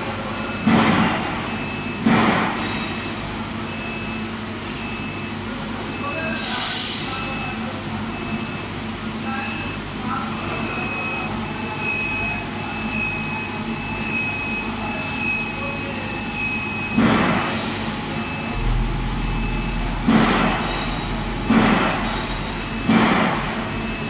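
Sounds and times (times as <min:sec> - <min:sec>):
low motor hum: 0:18.0 - 0:24.0
rumbling clatter: 0:18.4 - 0:24.0.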